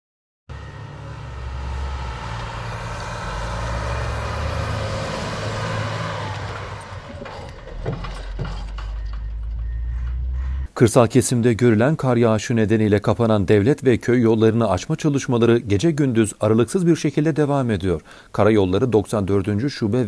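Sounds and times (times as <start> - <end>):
diesel engine running under load: 0.5 - 10.7
sharp knocks: 6.5 - 10.2.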